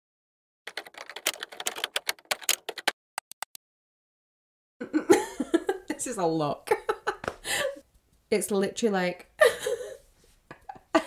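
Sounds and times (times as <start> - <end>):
woman speaking: 5.9 - 6.9, 8.3 - 9.4.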